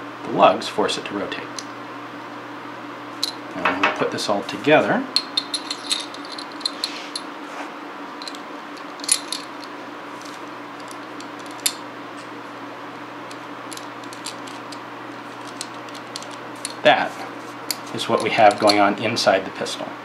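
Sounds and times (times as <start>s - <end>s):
metal parts clicking and scraping: 5.2s - 7.3s, 8.2s - 11.8s, 13.3s - 16.8s, 17.7s - 18.9s.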